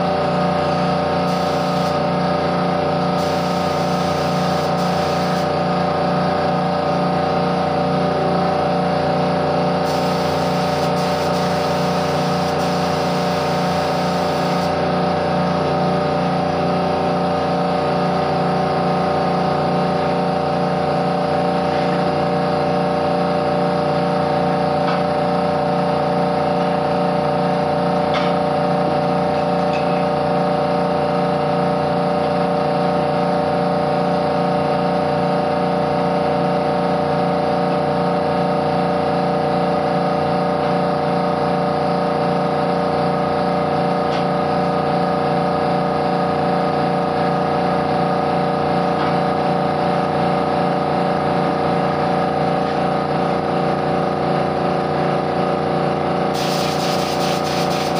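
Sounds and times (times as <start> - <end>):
air compressor motor hum: 0.0 - 57.9
air hissing: 1.3 - 2.0, 3.2 - 5.5, 9.9 - 14.8, 56.4 - 57.9.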